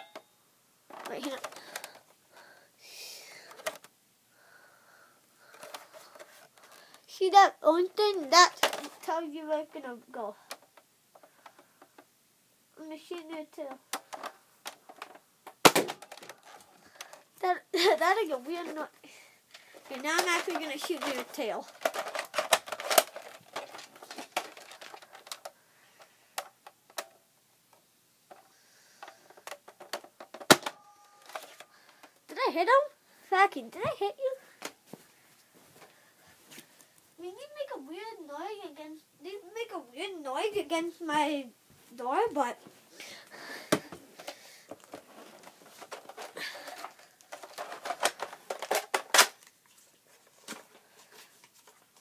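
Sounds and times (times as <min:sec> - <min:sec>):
plastic toy gun clicks and knocks: 0:03.5 - 0:03.9, 0:13.9 - 0:17.2, 0:20.0 - 0:25.5, 0:29.0 - 0:32.1, 0:45.9 - 0:49.5.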